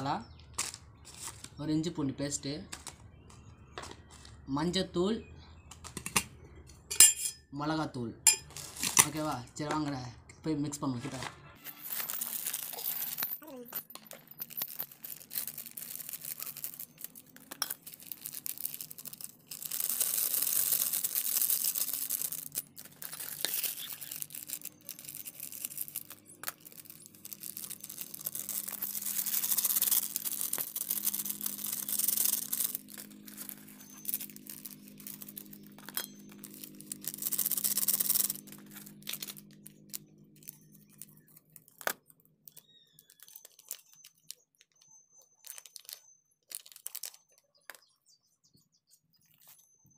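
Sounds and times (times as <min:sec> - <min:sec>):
foil packets crinkling: 0:11.7 - 0:44.4, 0:45.3 - 0:47.4.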